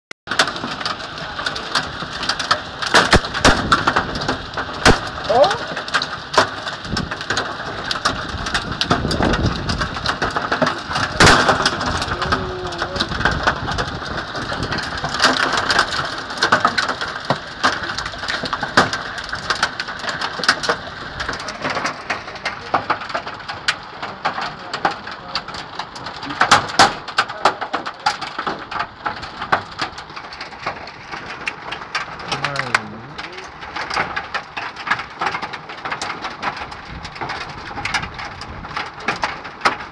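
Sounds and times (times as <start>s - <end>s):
hailstones striking: 0.3s - 39.9s
heavy rain hissing: 3.6s - 28.4s, 29.0s - 34.4s.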